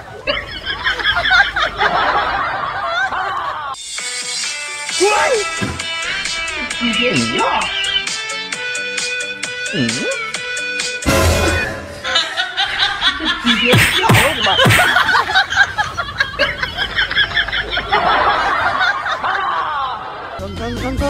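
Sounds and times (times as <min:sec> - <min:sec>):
people laughing: 0:00.0 - 0:03.8, 0:05.0 - 0:08.5, 0:12.0 - 0:20.6.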